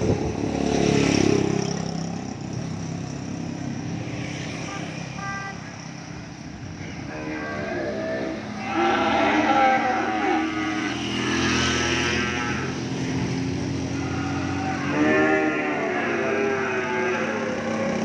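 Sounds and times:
cattle mooing: 0:06.9 - 0:12.8, 0:13.9 - 0:18.0.

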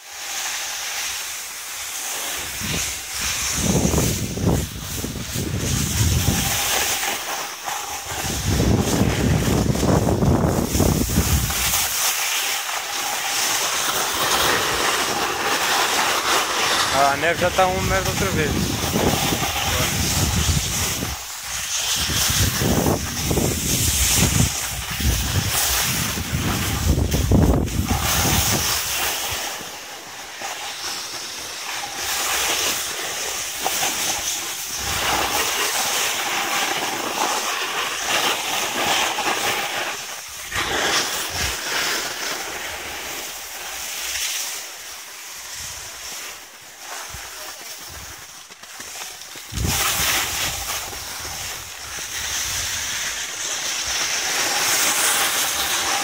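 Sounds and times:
snowboards sliding on snow: 0:00.0 - 0:56.0
wind buffeting microphone: 0:02.5 - 0:06.7, 0:08.1 - 0:11.8, 0:17.3 - 0:21.3, 0:21.9 - 0:28.9, 0:49.5 - 0:52.8.

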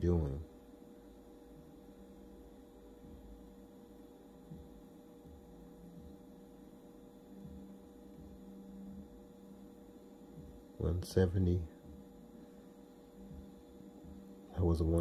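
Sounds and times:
electrical hum: 0:00.0 - 0:15.0.

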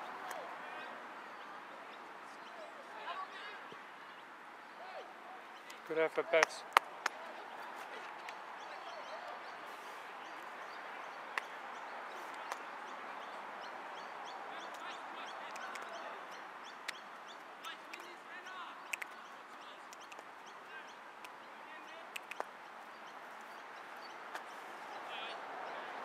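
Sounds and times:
outdoor background noise: 0:00.0 - 0:26.0
birds chirping and calling: 0:07.3 - 0:25.5.

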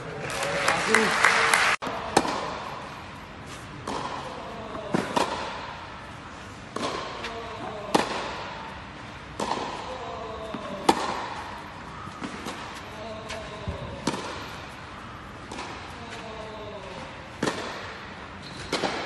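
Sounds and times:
tennis ball hit by rackets: 0:02.1 - 0:02.8, 0:03.8 - 0:05.8, 0:06.7 - 0:08.6, 0:09.3 - 0:16.2, 0:17.3 - 0:19.0.

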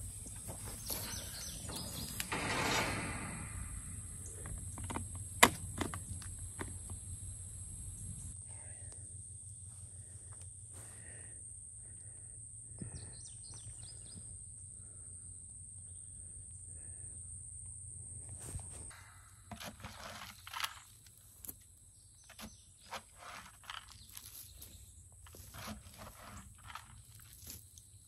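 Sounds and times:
faint hum with high whine: 0:03.2 - 0:22.6.

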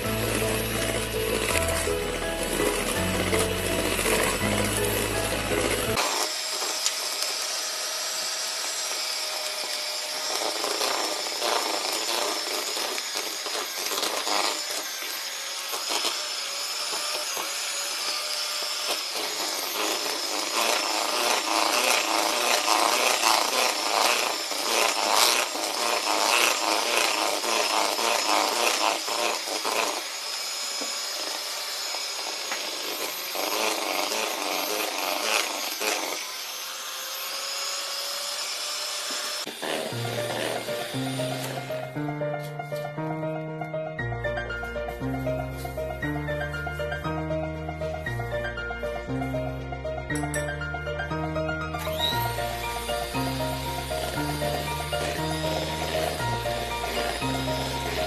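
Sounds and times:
beaters scraping through batter: 0:00.0 - 0:06.8, 0:51.9 - 0:58.0
electric hand mixer whine: 0:00.0 - 0:58.0.

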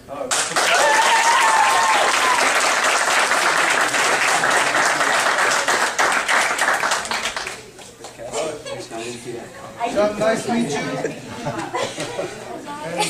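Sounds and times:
crowd applauding: 0:00.3 - 0:08.2.

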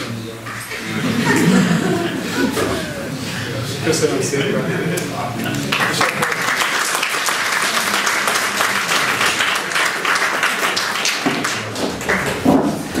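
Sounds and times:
audience applauding: 0:05.4 - 0:12.6.

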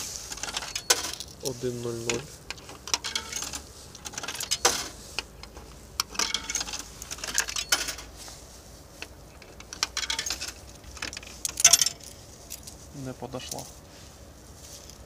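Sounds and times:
coins clinking in vending machine: 0:00.3 - 0:01.5, 0:02.8 - 0:05.0, 0:06.0 - 0:08.1, 0:09.7 - 0:10.6.

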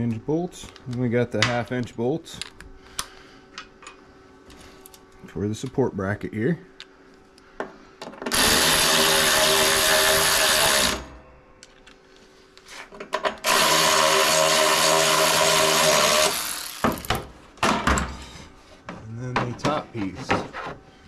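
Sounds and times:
power tool whine: 0:08.3 - 0:11.2, 0:13.4 - 0:17.2.

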